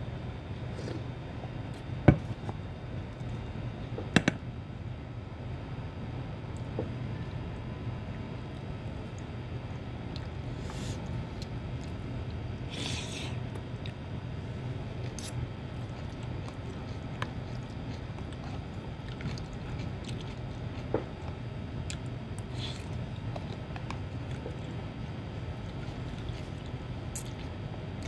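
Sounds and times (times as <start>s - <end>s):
chewing noodles: 15.0s - 27.6s.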